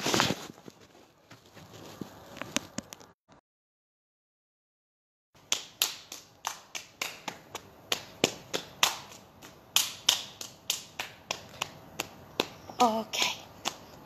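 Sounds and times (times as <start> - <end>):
hands slapping legs: 5.4 - 12.7, 13.6 - 14.0.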